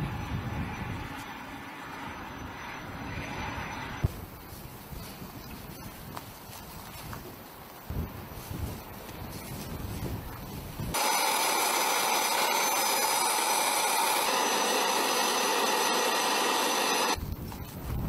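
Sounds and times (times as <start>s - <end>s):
faint high whine: 11.0s - 17.2s
hissing machine noise: 11.0s - 17.2s.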